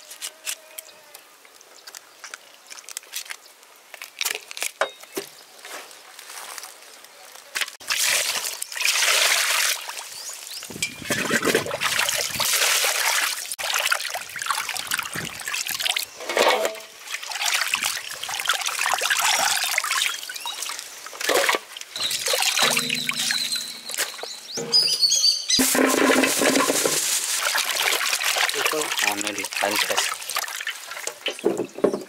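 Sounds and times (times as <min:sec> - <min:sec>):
water splashing in steel basin: 0:07.8 - 0:31.4.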